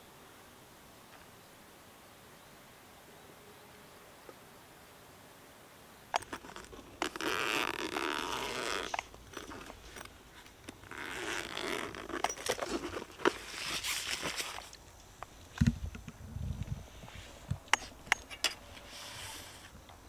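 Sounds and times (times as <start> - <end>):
zipper being pulled open: 6.2 - 14.8
handling clicks: 6.2 - 16.0.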